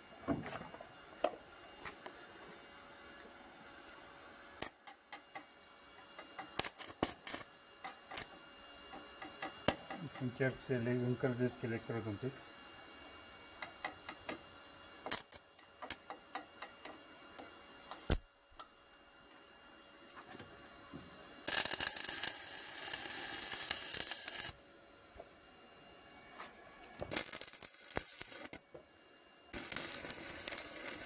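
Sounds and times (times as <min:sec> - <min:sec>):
welding arc crackling and hissing: 0:06.2 - 0:12.4, 0:15.0 - 0:18.3, 0:21.4 - 0:24.6, 0:27.0 - 0:28.7, 0:29.5 - 0:31.0.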